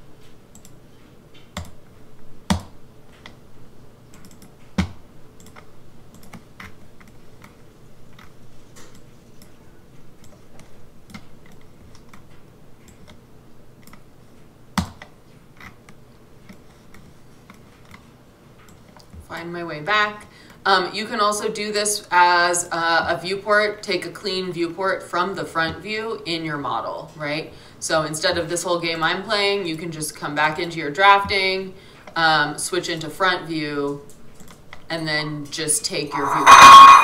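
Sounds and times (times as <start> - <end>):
keyboard and mouse clicking: 4.1 - 7.5.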